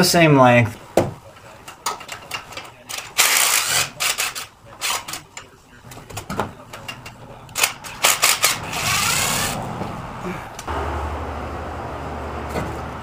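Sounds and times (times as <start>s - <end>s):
noisy whirring: 7.3s - 13.0s.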